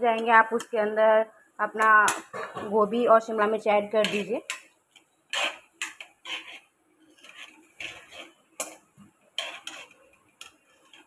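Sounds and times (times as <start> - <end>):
onions frying: 1.7 - 11.0
metal spoon scraping a pan: 3.8 - 4.7, 5.3 - 11.0.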